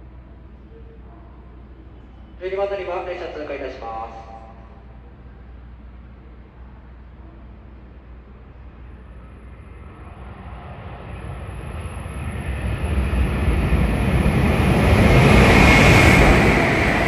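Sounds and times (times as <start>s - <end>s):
high-speed train rushing past: 7.7s - 17.0s.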